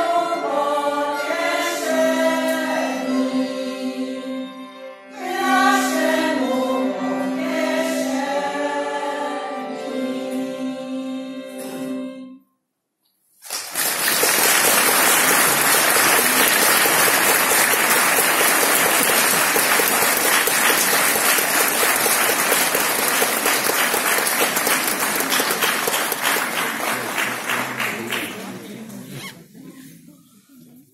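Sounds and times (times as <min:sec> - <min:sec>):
audience applauding: 0:13.4 - 0:29.1.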